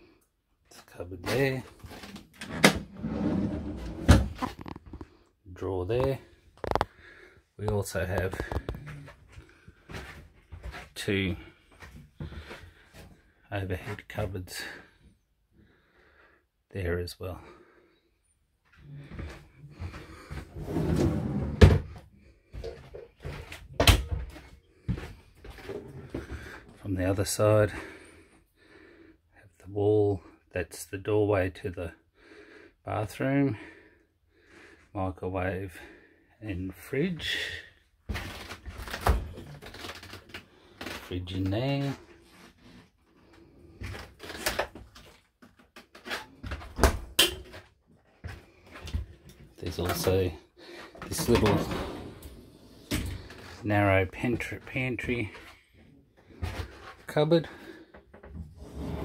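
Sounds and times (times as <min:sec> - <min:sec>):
cupboard opening: 0:01.9 - 0:04.9, 0:20.4 - 0:22.0, 0:51.0 - 0:53.6, 0:58.2 - 0:59.0
door shutting: 0:02.4 - 0:03.2.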